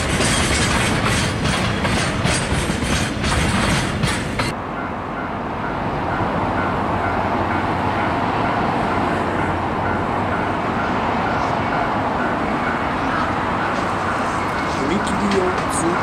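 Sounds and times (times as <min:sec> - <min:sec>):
freight train rolling past: 0:00.0 - 0:16.0
level crossing warning bell: 0:04.7 - 0:16.0.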